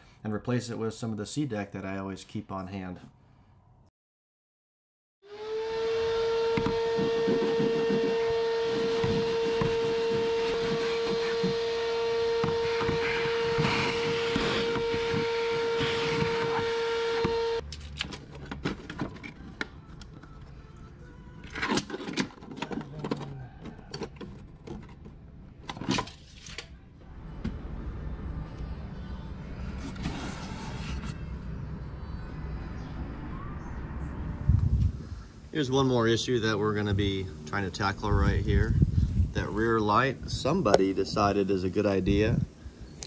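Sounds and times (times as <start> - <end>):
vacuum cleaner whine: 5.2 - 17.6.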